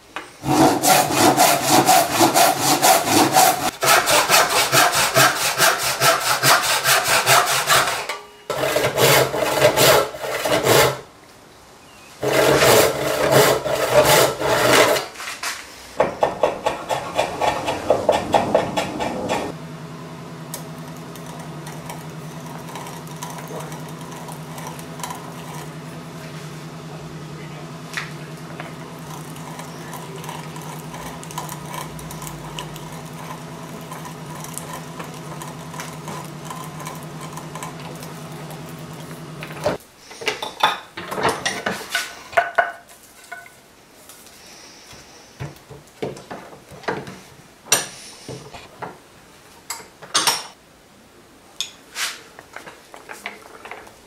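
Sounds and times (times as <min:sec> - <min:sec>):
steady tonal hum: 0:16.6 - 0:39.8.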